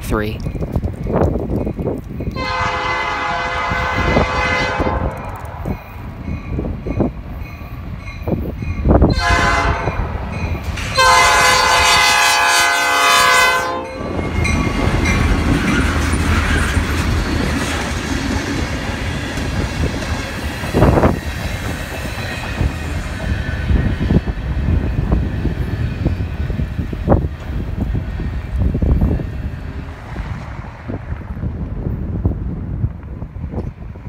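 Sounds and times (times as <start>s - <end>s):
freight train wheels rumbling: 0.0s - 34.0s
locomotive air horn blasts: 2.4s - 5.2s, 9.1s - 10.1s, 10.9s - 14.0s
crossing bell dinging: 5.2s - 11.9s, 13.5s - 16.2s.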